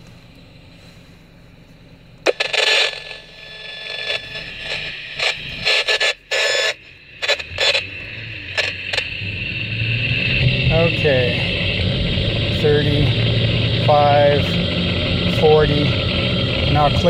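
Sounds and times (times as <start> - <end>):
high-pitched whine: 0.0 - 17.0
crackling static and scraping: 1.6 - 17.0.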